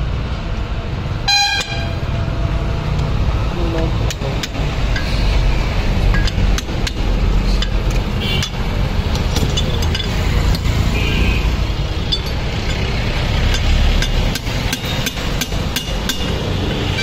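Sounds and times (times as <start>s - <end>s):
metal parts clinking: 6.0s - 10.8s, 11.9s - 15.2s.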